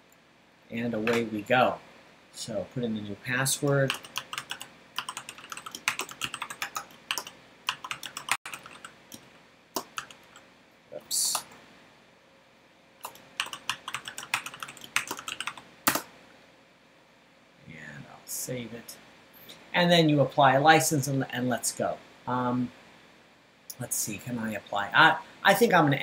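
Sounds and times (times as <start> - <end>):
computer keyboard typing: 3.6 - 10.4, 13.0 - 16.1.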